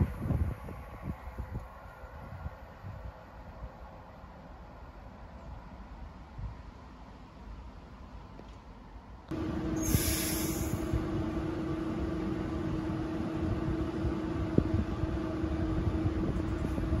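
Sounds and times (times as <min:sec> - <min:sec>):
train equipment humming: 0:07.0 - 0:17.0
air hiss: 0:09.8 - 0:11.0.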